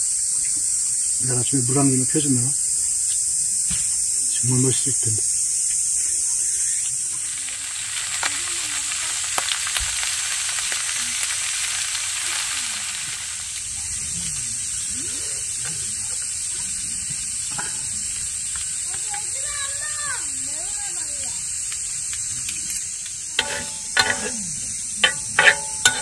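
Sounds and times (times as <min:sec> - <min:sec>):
food sizzling in pan: 0:00.0 - 0:26.0
tongs clicking against pan: 0:21.7 - 0:24.4, 0:25.0 - 0:26.0.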